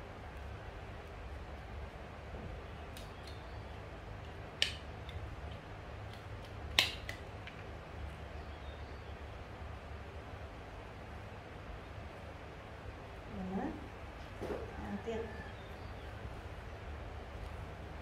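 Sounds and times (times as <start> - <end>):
low steady hum: 0.0 - 18.0
small sharp clicks: 2.9 - 7.7.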